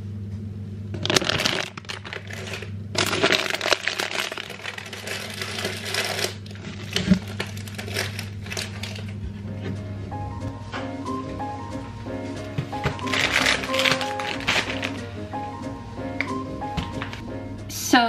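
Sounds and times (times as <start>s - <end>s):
steady low hum: 0.0s - 18.0s
packaging crinkling: 0.9s - 9.2s, 12.7s - 15.2s.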